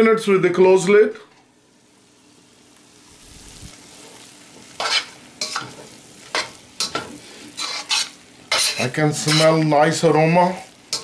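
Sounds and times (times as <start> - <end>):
food sizzling in a pan: 0.5 - 11.0
spatula scraping a pan: 3.9 - 9.6, 10.5 - 11.0.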